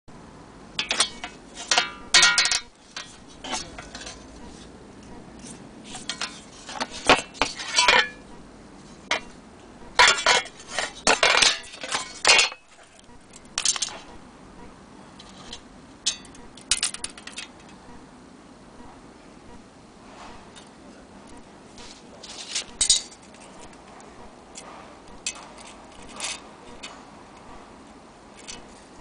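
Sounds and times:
metal clock hands clinking: 0.8s - 4.2s, 15.3s - 17.4s, 22.7s - 23.7s.

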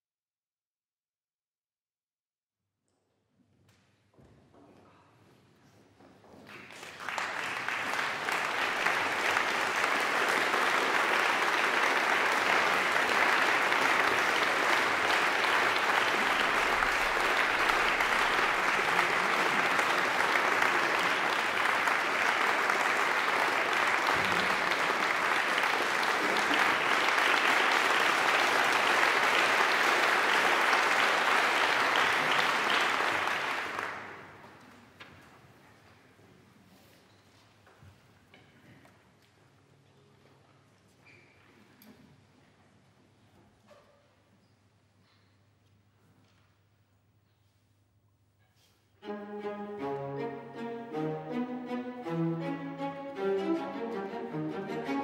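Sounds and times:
audience applauding: 6.4s - 34.6s, 49.1s - 55.0s.

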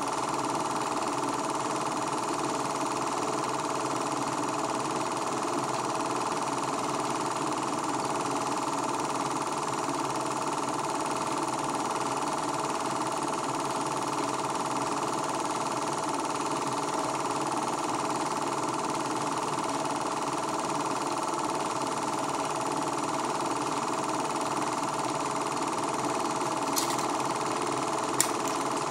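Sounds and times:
movie projector running: 0.0s - 28.9s
sharp click: 26.7s - 27.2s, 28.2s - 28.7s.

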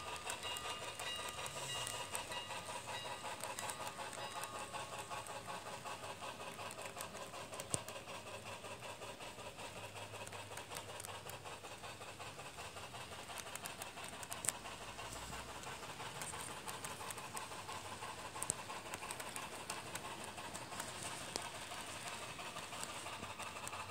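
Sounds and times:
sharp clicks: 0.0s - 8.1s, 12.8s - 14.8s, 15.4s - 23.9s
model train wheels clattering: 0.0s - 23.9s.

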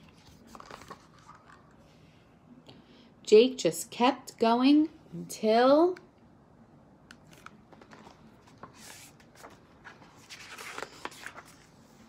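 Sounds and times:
paper rustling: 0.0s - 1.7s, 7.3s - 12.0s
soft clicks of book handling: 7.0s - 11.7s.

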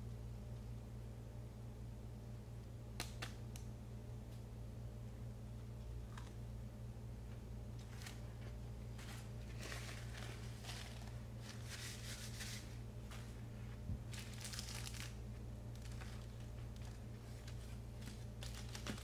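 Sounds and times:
low hum: 0.0s - 19.0s
paper wrapper crinkling: 7.8s - 13.3s, 14.0s - 19.0s.

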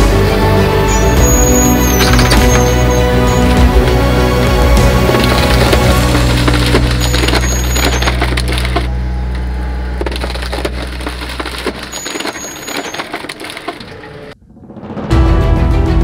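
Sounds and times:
high squeak: 0.8s - 14.0s
machine low hum: 3.1s - 12.7s
log cracking and splintering: 3.7s - 13.8s.

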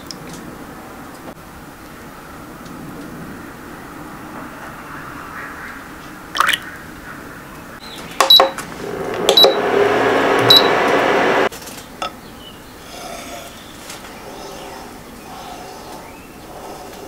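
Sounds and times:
cooling fan whirring hum: 6.3s - 16.9s
cooktop button beeps: 8.2s - 8.6s, 9.3s - 9.6s, 10.4s - 10.8s.

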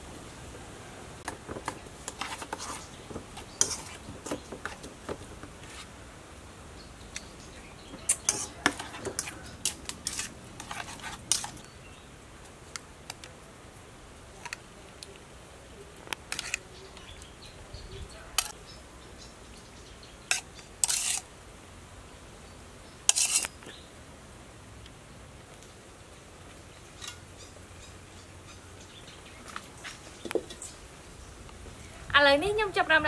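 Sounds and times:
spoon clinking and scraping bowl: 3.6s - 4.0s, 8.0s - 11.6s, 20.3s - 21.2s, 23.1s - 23.5s.

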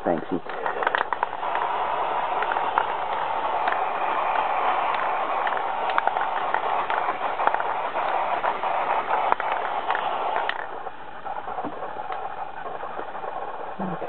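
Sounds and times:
spray paint can hissing: 0.0s - 14.0s.

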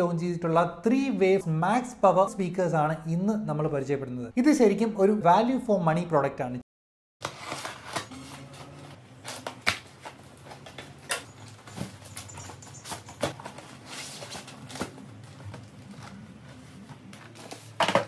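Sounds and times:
cardboard and paper rustling: 7.2s - 18.0s.

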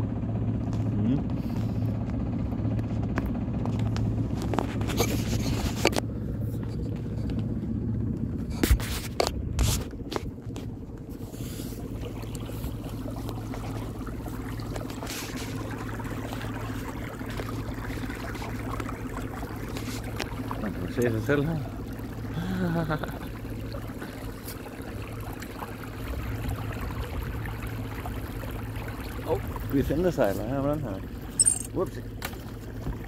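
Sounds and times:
boat engine droning: 0.0s - 33.0s
water washing along hull: 0.0s - 33.0s
sharp knocks and scrapes: 4.4s - 6.0s, 8.5s - 10.3s.

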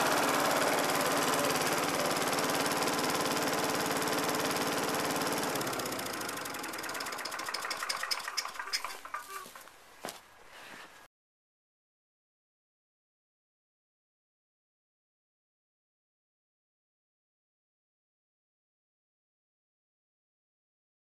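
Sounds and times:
lawn mower engine running: 0.0s - 9.7s.

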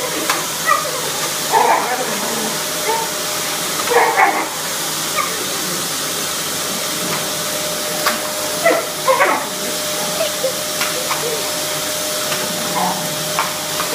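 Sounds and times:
vacuum cleaner whining: 0.0s - 13.9s
puppy barking: 0.6s - 3.1s, 3.8s - 4.6s, 5.2s - 5.5s, 8.6s - 11.5s, 12.3s - 13.2s.

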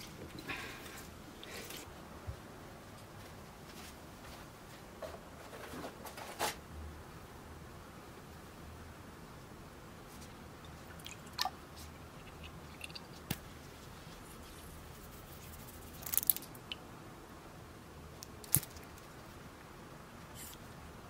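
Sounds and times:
faint steady hiss: 0.0s - 21.0s.

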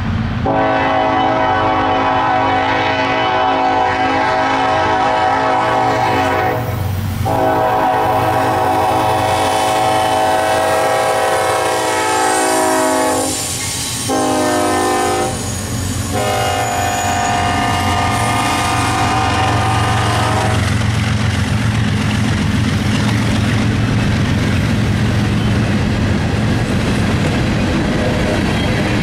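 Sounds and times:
rumble of engine and train: 0.0s - 29.0s
locomotive air horn blasts: 0.4s - 13.5s, 14.1s - 15.5s, 16.1s - 20.7s.

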